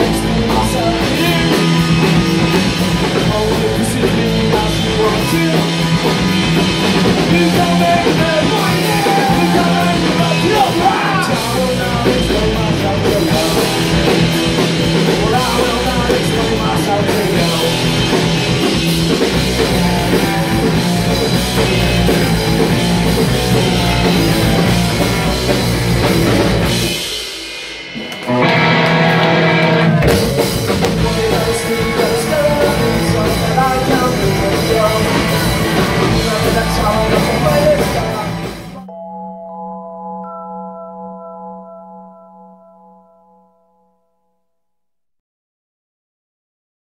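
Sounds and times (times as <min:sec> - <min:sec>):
male lead vocal: 0:00.0 - 0:18.8, 0:29.9 - 0:38.9
bass guitar: 0:00.0 - 0:38.9
distorted electric guitars: 0:00.0 - 0:38.9
drum kit: 0:00.0 - 0:38.9.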